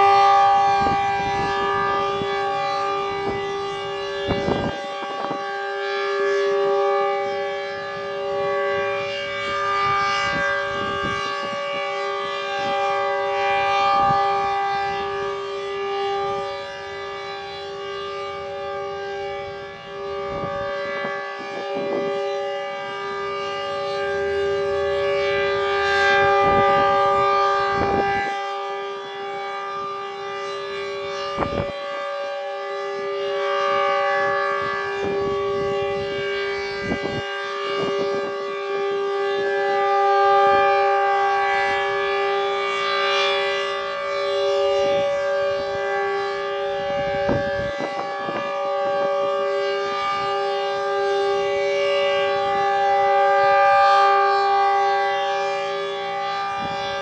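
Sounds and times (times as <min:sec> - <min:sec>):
rotating warning siren: 0:00.0 - 0:57.0.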